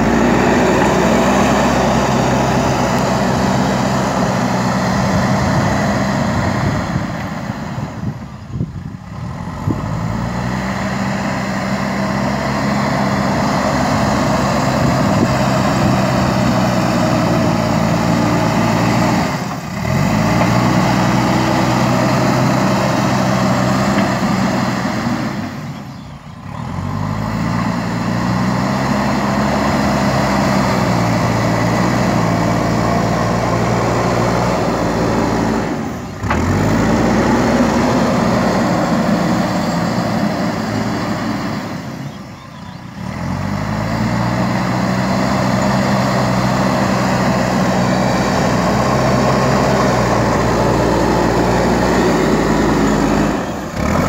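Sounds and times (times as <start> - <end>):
backhoe diesel engine revving: 0.0 - 54.0.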